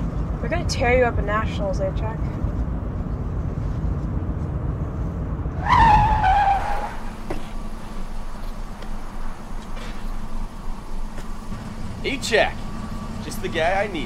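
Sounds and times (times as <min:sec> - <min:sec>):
car engine running: 0:00.0 - 0:14.0
tyres screeching: 0:05.6 - 0:14.0.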